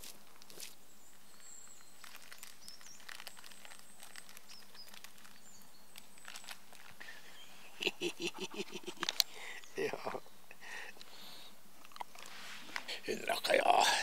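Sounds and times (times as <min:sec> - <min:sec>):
paper wrapping crinkling: 0:00.0 - 0:07.2
faint bird chirps: 0:00.6 - 0:11.6.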